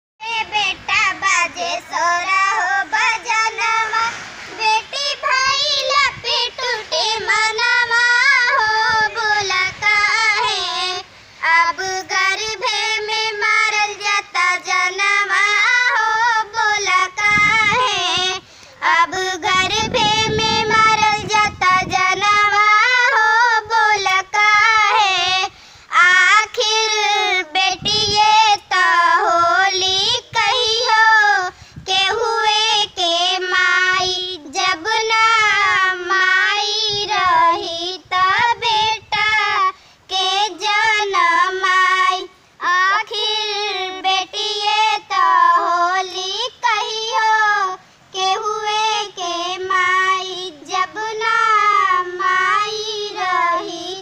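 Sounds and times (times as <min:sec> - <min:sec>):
girl singing: 0:00.2 - 0:54.0.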